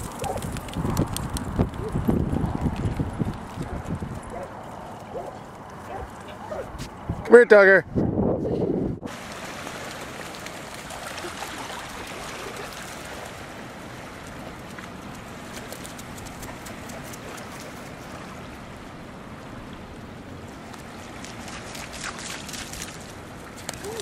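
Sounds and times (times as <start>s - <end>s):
dog splashing through water: 9.2s - 18.4s, 20.9s - 24.0s.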